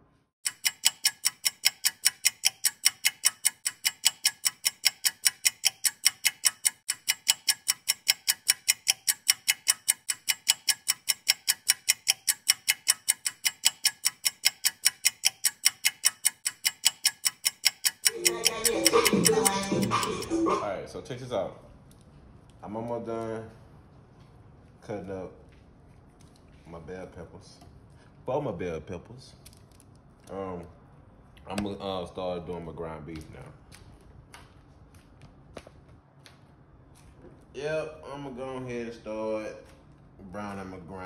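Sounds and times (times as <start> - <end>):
fast even ticking: 0.4 - 20.6.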